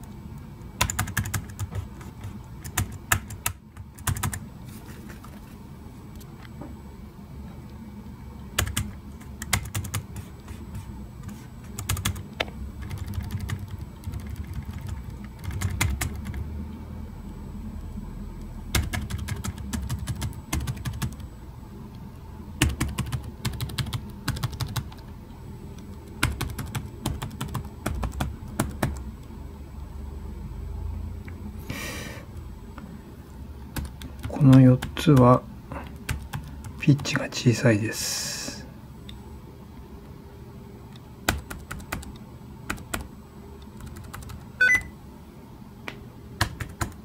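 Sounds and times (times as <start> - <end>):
laptop keyboard clicking: 0.8 - 4.4, 8.6 - 10.2, 11.8 - 12.2, 12.8 - 16.4, 18.7 - 21.2, 22.6 - 25.0, 25.9 - 29.0, 33.8 - 34.9, 36.0 - 37.1, 41.3 - 43.1, 43.8 - 44.4, 46.4 - 47.0.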